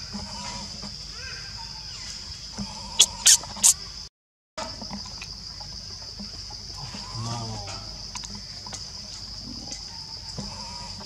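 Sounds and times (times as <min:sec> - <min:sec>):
forest insects droning: 0:00.0 - 0:11.0
sharp high squeaks: 0:03.0 - 0:03.8.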